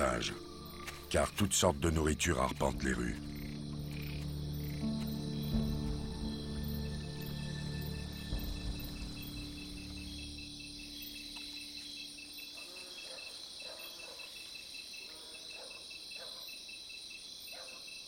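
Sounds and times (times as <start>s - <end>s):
crickets chirping: 0.0s - 18.0s.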